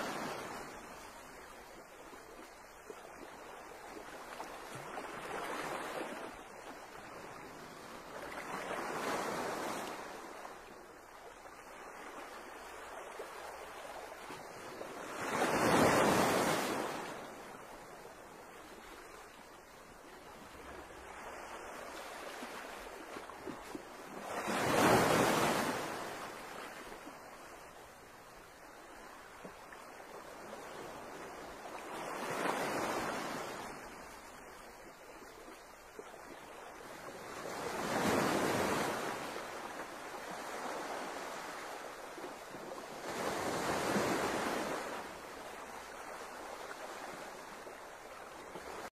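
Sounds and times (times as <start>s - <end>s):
surf washing on shore: 11.8s - 18.2s, 20.2s - 27.6s.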